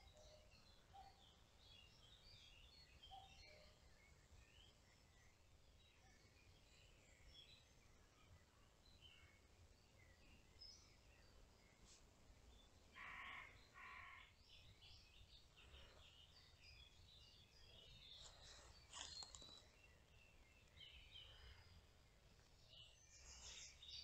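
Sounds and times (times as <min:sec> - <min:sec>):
small birds chirping: 0:00.0 - 0:24.0
harsh bird calls: 0:12.9 - 0:14.4.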